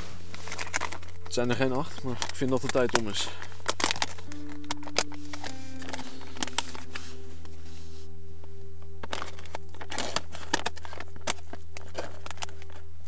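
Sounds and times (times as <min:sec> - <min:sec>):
soft music with low drone: 0:00.0 - 0:13.0
meal pouch crinkling: 0:09.0 - 0:12.9.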